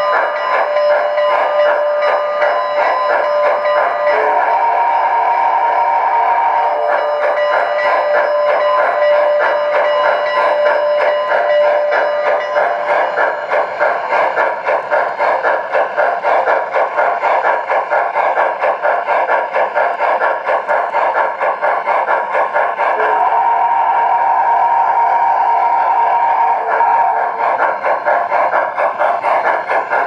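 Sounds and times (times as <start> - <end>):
steam whistle tone: 0.0 - 14.6, 22.8 - 28.6
model train chuffing: 0.0 - 30.0.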